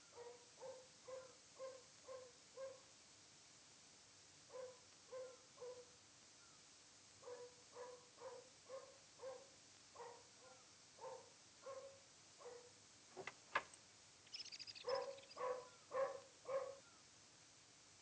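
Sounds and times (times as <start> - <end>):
dog barking: 0.1 - 2.9, 4.5 - 6.0, 7.2 - 12.8, 14.8 - 16.8.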